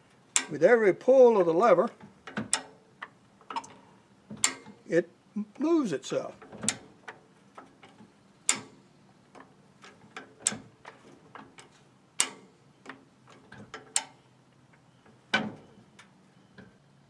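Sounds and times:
jack mechanism ticking: 0.3s - 0.6s, 6.2s - 14.2s.

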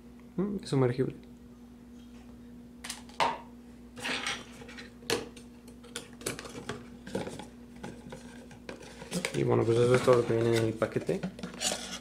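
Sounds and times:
packaging scraping rustle: 8.1s - 12.0s.

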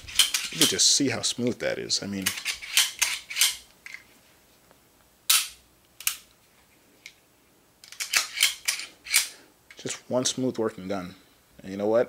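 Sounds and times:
pistol slide clicking: 7.9s - 9.3s.

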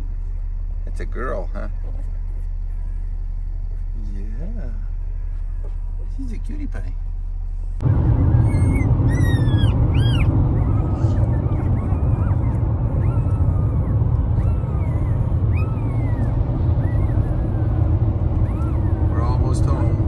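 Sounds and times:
car cabin rumble: 0.0s - 20.0s
puppies whining: 7.8s - 20.0s.

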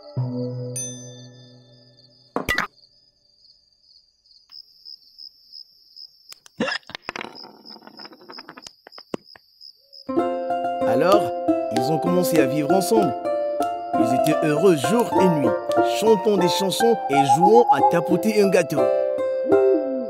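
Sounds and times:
crickets chirping: 1.8s - 10.1s, 16.0s - 18.6s
music cue: 14.0s - 20.0s.

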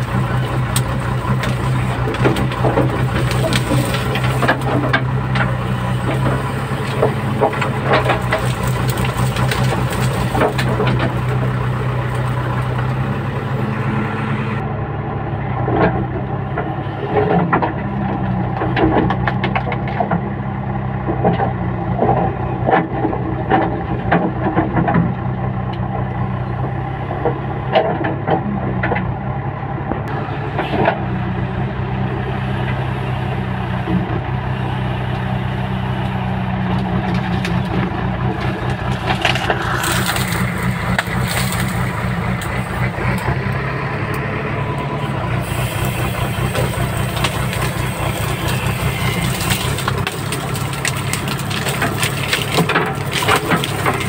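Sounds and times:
backhoe arm knocks and clanks: 0.0s - 13.8s, 15.6s - 20.4s, 21.0s - 26.1s, 27.1s - 29.1s, 36.6s - 45.3s
diesel engine running: 0.0s - 54.0s.

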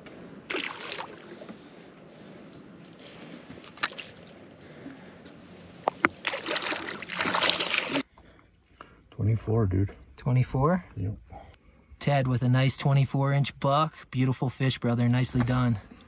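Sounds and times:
net scooping thrashing fish: 0.5s - 1.4s, 6.2s - 8.1s
fish splashing in water: 0.5s - 1.5s, 3.6s - 4.4s, 6.1s - 8.1s.

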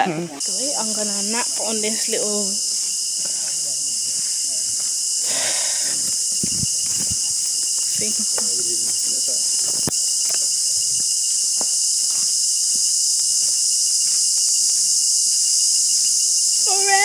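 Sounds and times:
insect chorus drone: 0.0s - 17.0s
faint footsteps: 2.6s - 16.1s.

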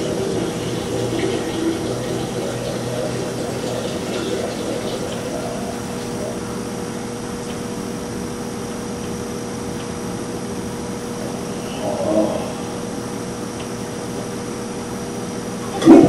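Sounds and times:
running water: 0.0s - 7.2s
low hum: 0.0s - 16.0s.

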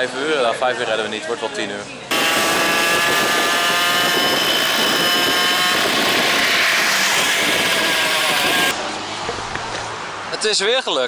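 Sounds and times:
moped engine buzzing: 2.1s - 8.8s.

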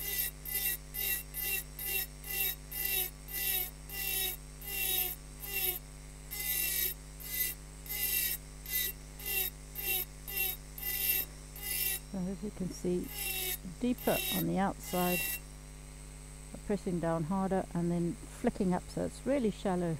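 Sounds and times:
engraving burr grinding glass: 0.0s - 15.6s
steady low hum: 0.0s - 19.9s.

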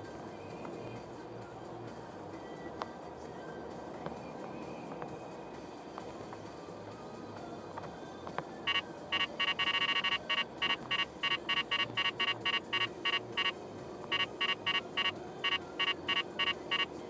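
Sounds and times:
road noise inside car: 0.0s - 17.0s
radar detector beeps: 8.7s - 17.0s.

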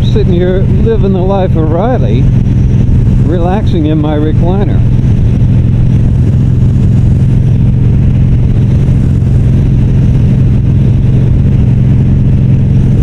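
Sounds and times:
motorcycle engine cruising: 0.0s - 13.0s.

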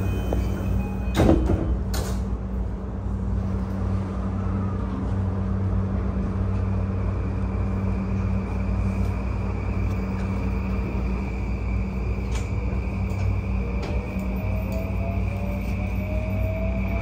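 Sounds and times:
sliding train doors shutting: 0.0s - 2.8s, 8.1s - 17.0s
train car low hum: 0.0s - 17.0s.

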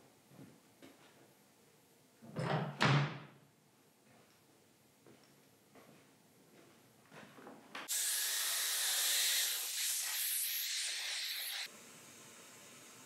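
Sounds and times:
compressed air blow gun hissing: 7.9s - 13.0s.

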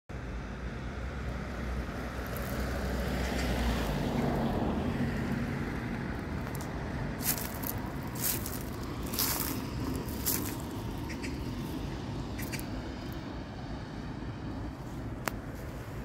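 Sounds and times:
road traffic rumble: 0.1s - 16.0s
crackling rustle: 6.1s - 11.7s.

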